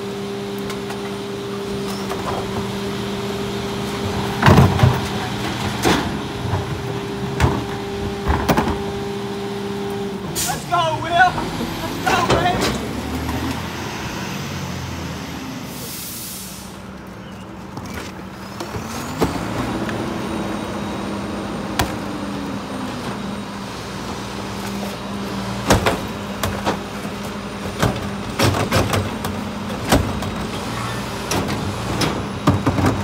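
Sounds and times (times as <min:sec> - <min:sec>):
bins banging into hopper: 0:04.2 - 0:08.9, 0:25.6 - 0:33.0
engine revving: 0:10.7 - 0:15.8
air brake hiss: 0:15.7 - 0:16.8.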